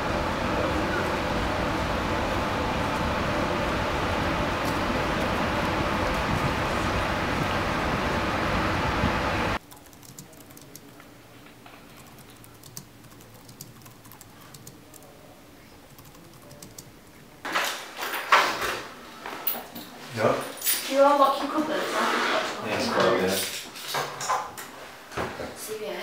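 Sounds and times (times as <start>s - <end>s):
street noise: 0.0s - 9.6s
typing on a keyboard: 9.6s - 11.0s, 11.9s - 15.1s, 15.9s - 16.9s.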